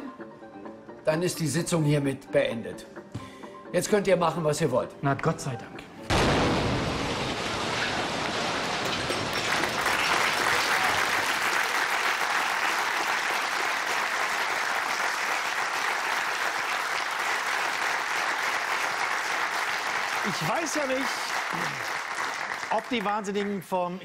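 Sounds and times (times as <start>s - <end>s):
audience applauding: 8.5s - 23.8s.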